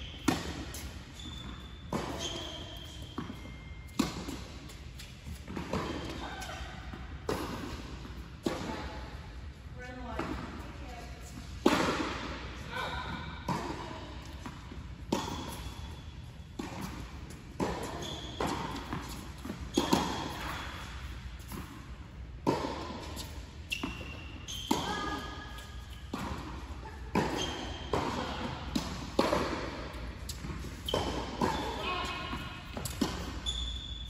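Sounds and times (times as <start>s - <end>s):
shoe squeaks: 0.0s - 6.6s, 15.1s - 17.0s, 17.6s - 21.6s, 23.1s - 26.2s, 26.8s - 28.4s, 30.2s - 34.0s
ball bouncing on hard court: 0.1s - 9.2s, 9.9s - 16.0s, 16.6s - 34.0s
rackets striking tennis ball: 0.1s - 9.3s, 9.9s - 34.0s.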